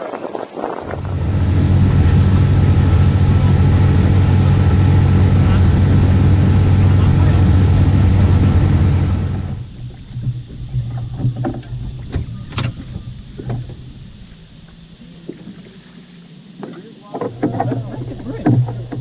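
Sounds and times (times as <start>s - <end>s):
water rushing: 0.0s - 19.0s
wind rushing: 0.4s - 9.7s
outboard motor engine: 0.6s - 19.0s
low steady hum: 0.8s - 19.0s
scattered clicks and knocks: 10.2s - 13.8s, 16.6s - 19.0s.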